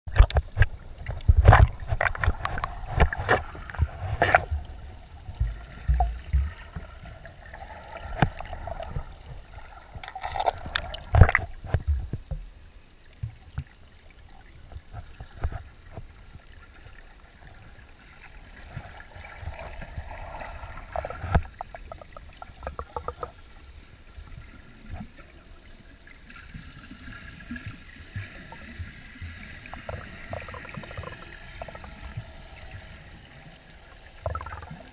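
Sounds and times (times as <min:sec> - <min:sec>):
knocks and thumps on camera: 0:00.1 - 0:04.6
muffled water sloshing and gurgling: 0:00.1 - 0:34.9.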